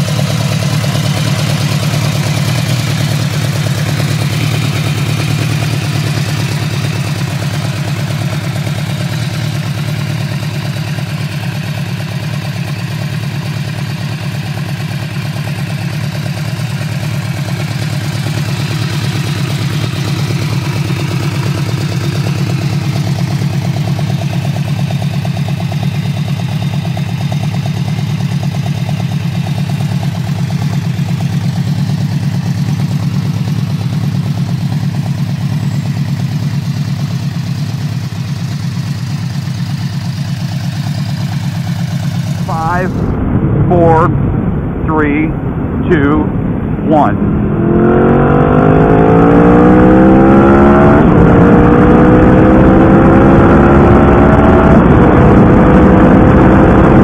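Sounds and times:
motorcycle engine idling: 0.0s - 42.8s.

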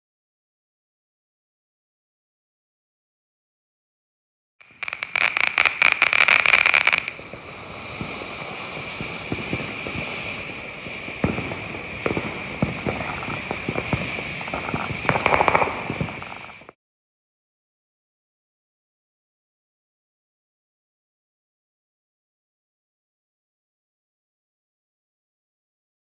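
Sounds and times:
fireworks crackling and popping: 4.6s - 16.8s
fireworks fountain hissing: 4.6s - 16.8s.

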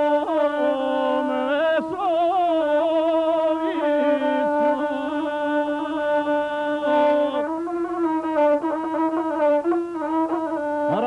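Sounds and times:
man singing: 0.0s - 7.6s
bowed single-string fiddle: 0.0s - 11.0s.

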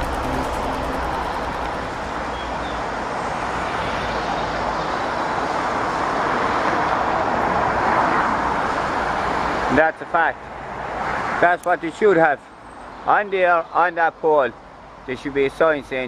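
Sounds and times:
road traffic rushing: 0.0s - 13.2s.

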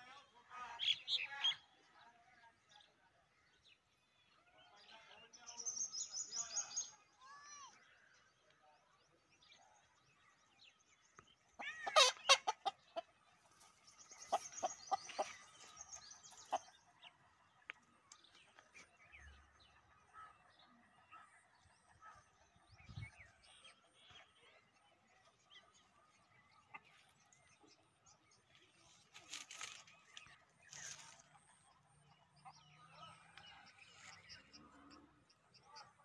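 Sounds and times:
fowl calling: 11.6s - 12.8s.

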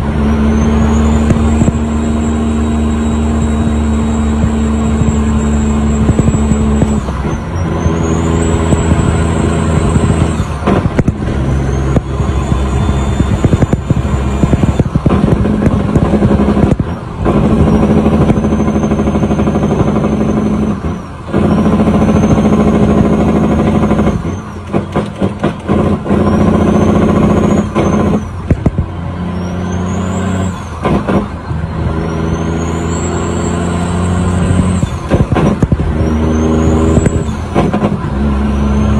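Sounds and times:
truck diesel engine: 0.0s - 38.9s
turbo whistle: 0.3s - 10.5s, 11.4s - 14.9s, 32.0s - 35.0s.

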